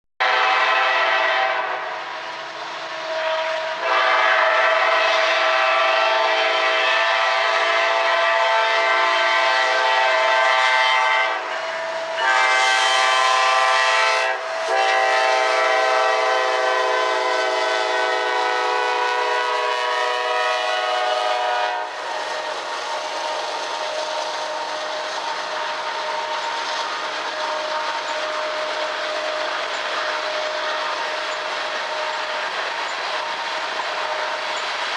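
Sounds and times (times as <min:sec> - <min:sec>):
locomotive air horn blasts: 0:00.2 - 0:02.0, 0:02.9 - 0:26.4
train rumble and wheel clatter: 0:00.2 - 0:34.9.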